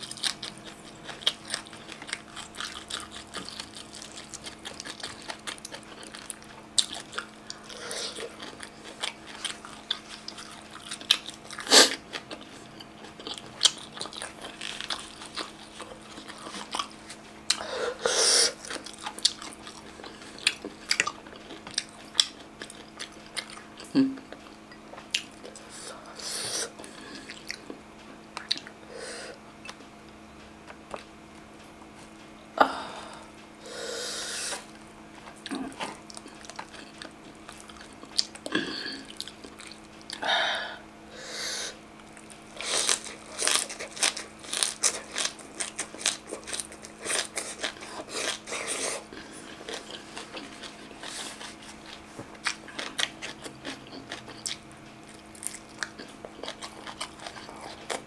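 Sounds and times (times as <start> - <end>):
chewing and crunching food: 0.0 - 32.3, 34.5 - 40.3, 41.8 - 58.0
faint steady hum: 0.0 - 58.0.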